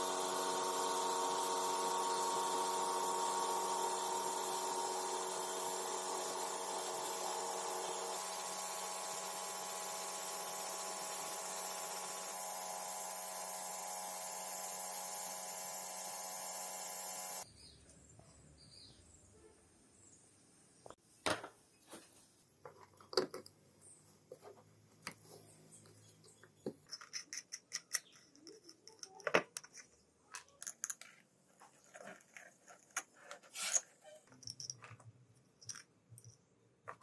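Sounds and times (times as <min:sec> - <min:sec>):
electric power tool whining: 0:00.0 - 0:17.5.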